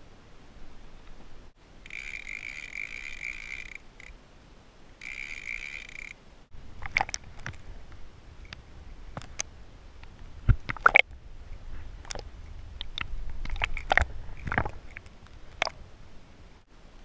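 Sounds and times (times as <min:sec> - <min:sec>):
fishing reel drag buzzing: 0:01.8 - 0:04.2, 0:05.0 - 0:06.2
underwater clicks and pops: 0:06.8 - 0:07.6, 0:09.2 - 0:09.5, 0:10.5 - 0:11.1, 0:12.0 - 0:15.8.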